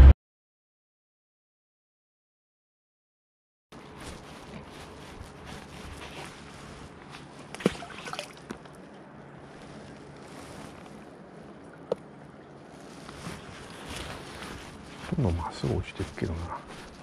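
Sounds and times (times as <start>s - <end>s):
water sloshing: 3.8s - 17.0s.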